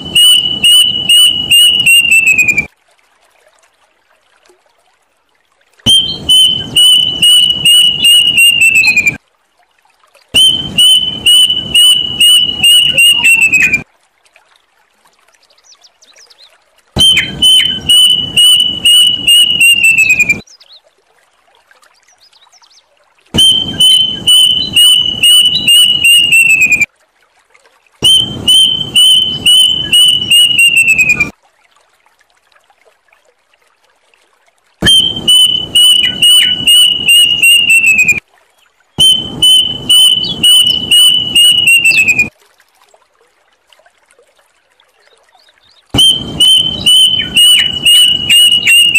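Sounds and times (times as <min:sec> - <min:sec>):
cuckoo calling: 0:00.0 - 0:02.7, 0:05.9 - 0:09.2, 0:10.4 - 0:13.8, 0:17.0 - 0:20.4, 0:23.4 - 0:26.9, 0:28.0 - 0:31.3, 0:34.8 - 0:38.2, 0:39.0 - 0:42.3, 0:46.0 - 0:48.9.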